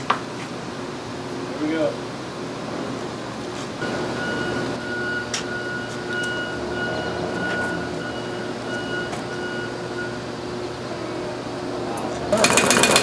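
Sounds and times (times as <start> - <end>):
machinery hum: 0.0 - 13.0
high-pitched tone: 3.8 - 11.3.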